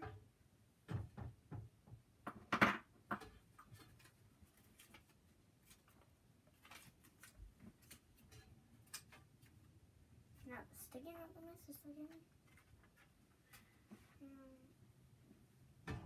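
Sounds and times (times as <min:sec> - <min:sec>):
desk items clicking and knocking: 0:00.0 - 0:04.2.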